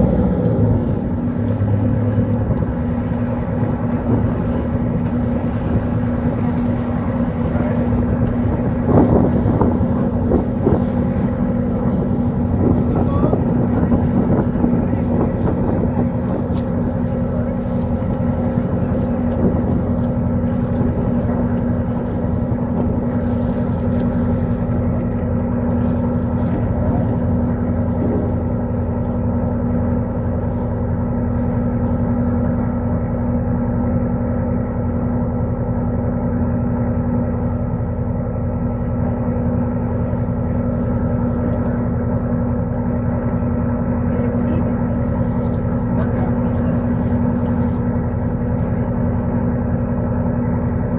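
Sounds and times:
boat engine droning: 0.0 - 50.9.

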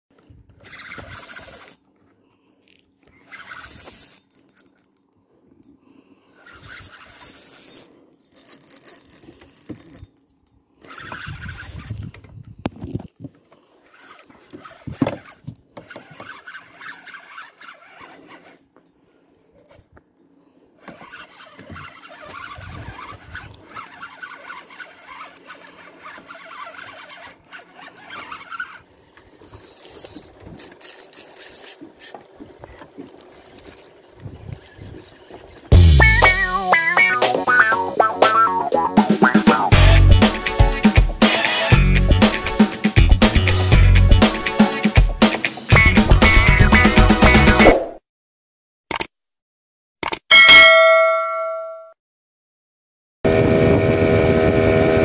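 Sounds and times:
fishing reel being cranked: 0.6 - 1.9, 2.6 - 5.7, 6.3 - 19.0, 20.8 - 35.5.

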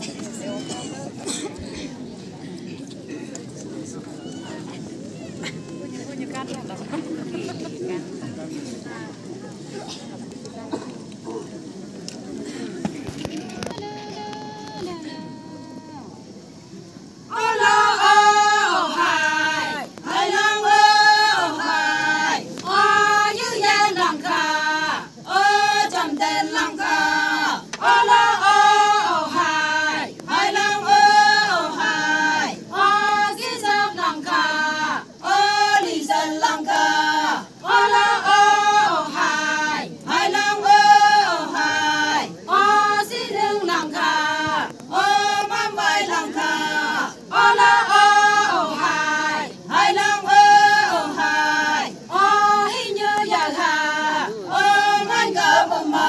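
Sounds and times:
women singing a chant in unison: 13.6 - 16.3, 17.0 - 56.0.

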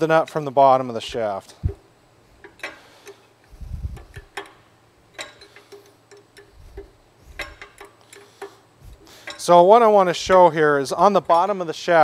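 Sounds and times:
ratchet wrench clicking: 2.4 - 10.6.

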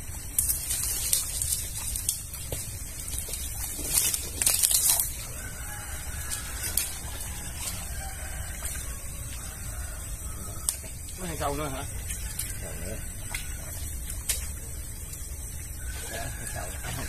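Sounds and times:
rustling palm fronds: 0.0 - 17.0
rooster crowing: 4.9 - 14.1, 15.7 - 17.0.

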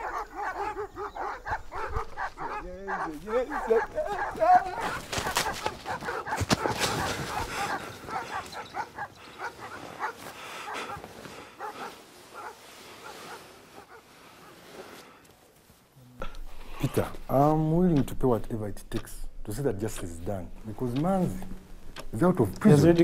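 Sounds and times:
frantic cries and shouts: 0.0 - 11.7.

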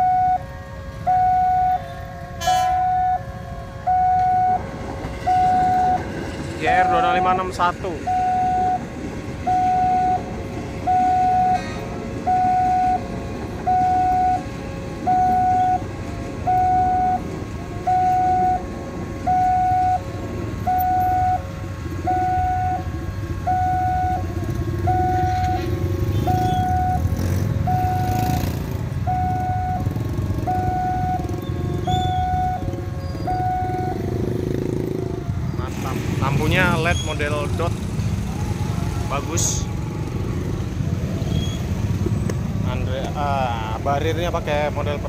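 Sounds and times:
electric train rumbling past: 0.0 - 45.0.

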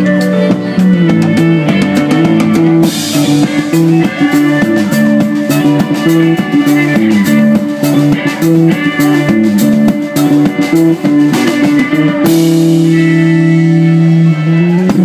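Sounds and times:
drum strokes: 0.0 - 15.0
small band playing live: 0.0 - 15.0.

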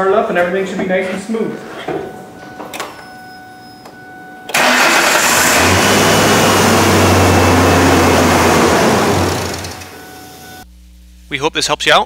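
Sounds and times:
engine starting and running: 4.5 - 10.6.

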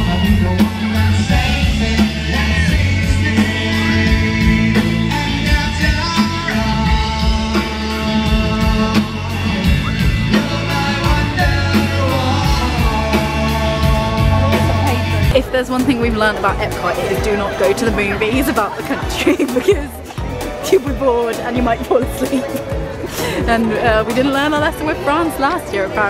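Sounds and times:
person singing: 0.0 - 15.4
steady drumbeat: 0.0 - 25.6
live rock band playing: 0.0 - 26.0.

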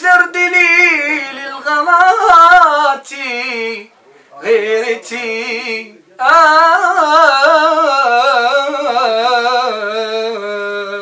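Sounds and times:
singer breathing: 4.0 - 4.4.

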